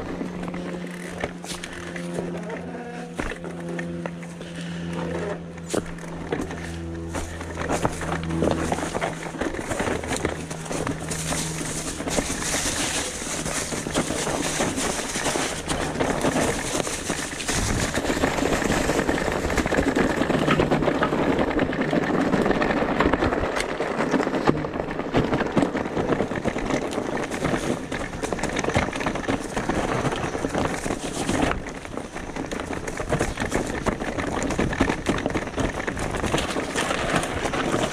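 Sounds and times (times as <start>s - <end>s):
electric motor humming: 0.0s - 24.8s
bike rattling: 0.0s - 37.9s
tyres crunching on stones: 0.0s - 37.9s.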